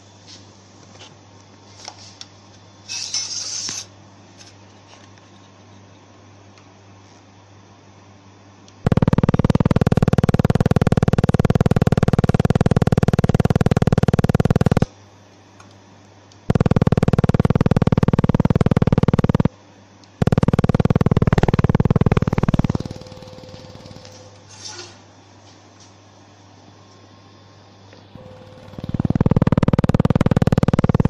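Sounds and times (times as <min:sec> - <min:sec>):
laser welder buzzing: 0:02.9 - 0:04.0, 0:08.7 - 0:14.9, 0:16.3 - 0:24.5, 0:28.1 - 0:31.0.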